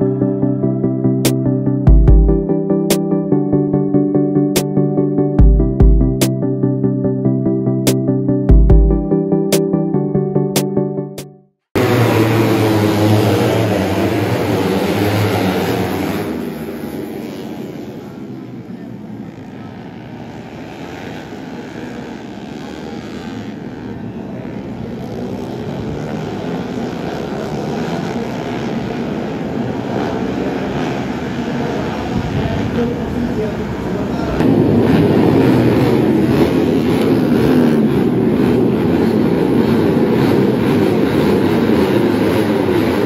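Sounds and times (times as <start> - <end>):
motorcycles accelerating: 11.8 - 43.0.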